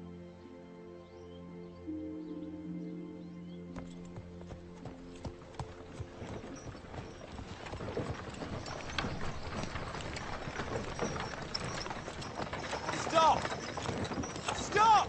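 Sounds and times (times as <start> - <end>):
held music chord: 0.0 - 6.2
horse hooves clopping on dirt: 3.7 - 15.0.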